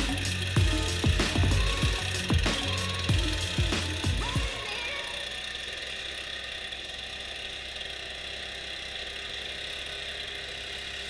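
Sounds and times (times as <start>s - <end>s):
leaf blower running: 0.0s - 11.0s.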